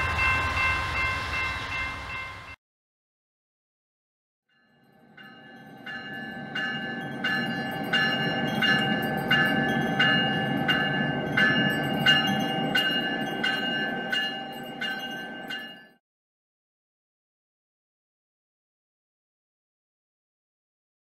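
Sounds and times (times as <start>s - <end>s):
locomotive bell ringing: 0.0s - 2.6s, 4.6s - 16.0s.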